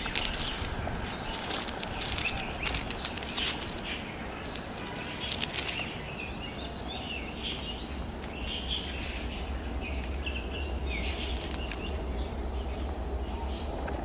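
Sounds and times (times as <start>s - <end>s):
rustling clicks: 0.0s - 6.5s, 11.0s - 11.9s
low background rumble: 0.0s - 14.0s
small birds chirping: 0.0s - 14.0s.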